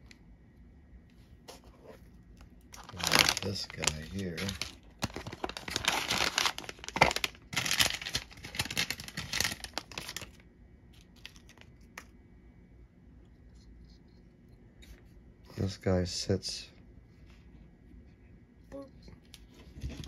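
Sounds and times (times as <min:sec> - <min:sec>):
plastic bag crinkling: 0:02.7 - 0:10.4, 0:11.0 - 0:11.9.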